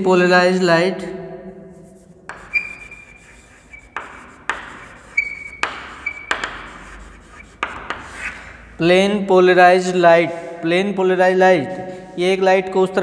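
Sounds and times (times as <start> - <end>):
chalk scratching on blackboard: 1.7 - 8.7, 11.6 - 12.3
chalk tapping on board: 1.9 - 8.6
high chalk squeak: 1.9 - 8.6.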